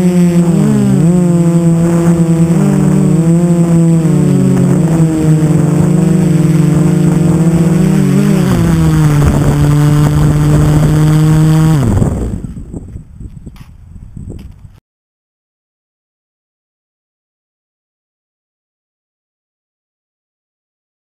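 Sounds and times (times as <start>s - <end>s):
drone motors whining: 0.0s - 13.6s.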